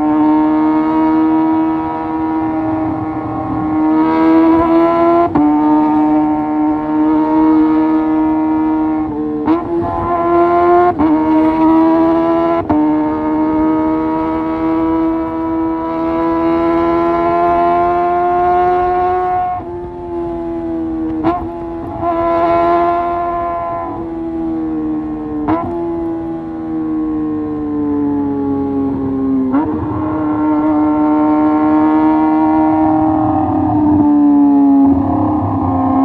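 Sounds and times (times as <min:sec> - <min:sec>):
motorcycle engine exhaust note: 0:28.9 - 0:36.0.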